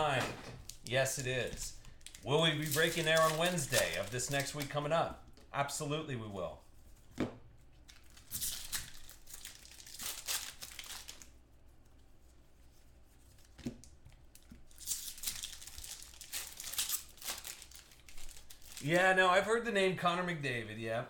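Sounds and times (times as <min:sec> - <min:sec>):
foil wrappers tearing and crinkling: 0:00.0 - 0:04.8, 0:07.9 - 0:11.4, 0:14.3 - 0:19.1.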